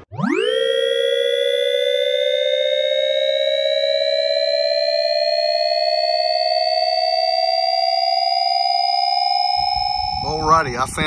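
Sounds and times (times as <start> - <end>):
rising electronic sweep: 0.0 - 11.0.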